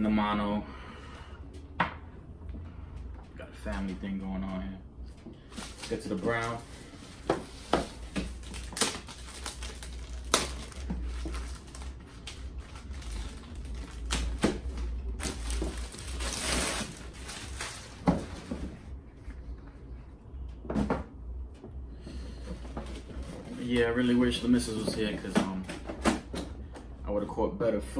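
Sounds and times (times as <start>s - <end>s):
plastic wrap crinkling and tearing: 5.4s - 18.8s.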